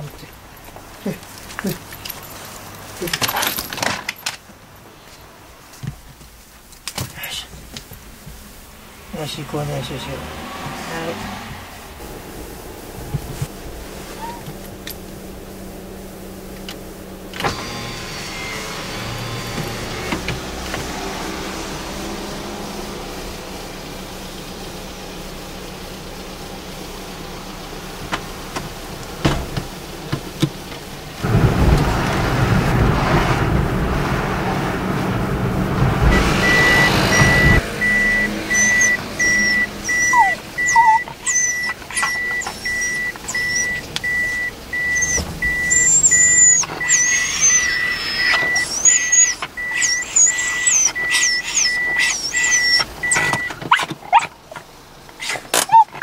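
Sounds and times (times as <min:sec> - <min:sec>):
car cabin driving noise: 0:00.0 - 0:56.0
in-car reversing beeps: 0:17.4 - 0:20.3, 0:36.1 - 0:54.3, 0:55.7 - 0:55.9.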